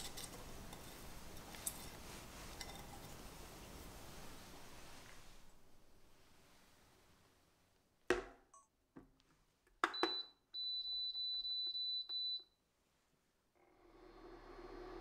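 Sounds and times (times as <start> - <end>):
cooktop humming: 0.0 - 6.3.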